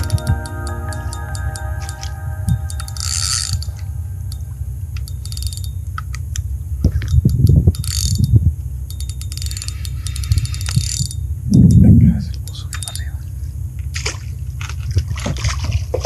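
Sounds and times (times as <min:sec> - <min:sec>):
steady low rumble: 0:00.0 - 0:08.9, 0:10.0 - 0:13.9
fishing reel clicking: 0:05.0 - 0:05.8, 0:06.9 - 0:11.3.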